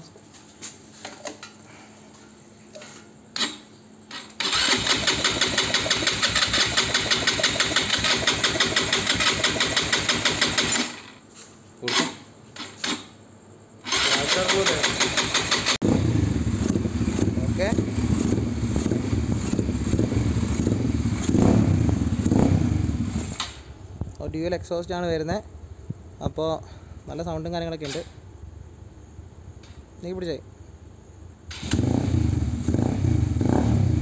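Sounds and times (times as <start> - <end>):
engine starter cranking: 3.4 - 11.1, 13.9 - 15.8, 31.5 - 31.9
engine running: 13.9 - 23.4.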